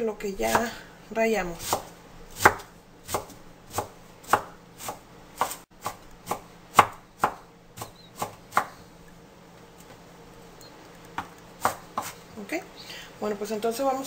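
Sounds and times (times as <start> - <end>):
knife chopping on wooden board: 0.4 - 0.8, 1.6 - 8.8, 11.2 - 12.2.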